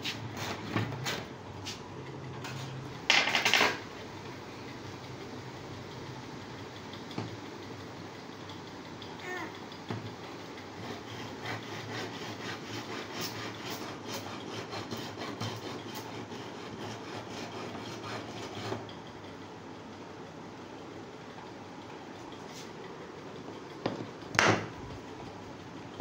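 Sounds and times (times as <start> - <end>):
hand saw cutting wood: 10.7 - 18.9.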